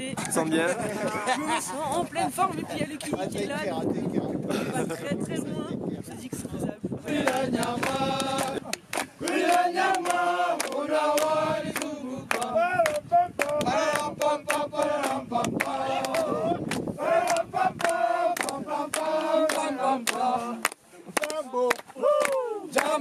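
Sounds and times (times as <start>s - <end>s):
group singing: 7.0s - 21.8s, 22.7s - 23.0s
hands clapping: 7.2s - 23.0s.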